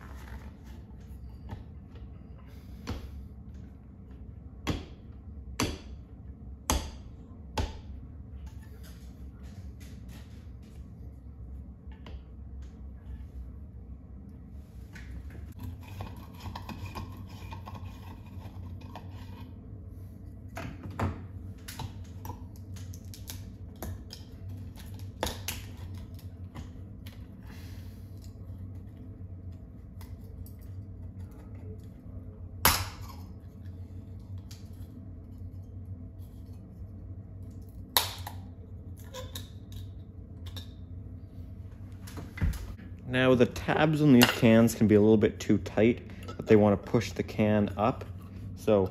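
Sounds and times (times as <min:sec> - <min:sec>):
steady low hum: 0:00.0 - 0:48.9.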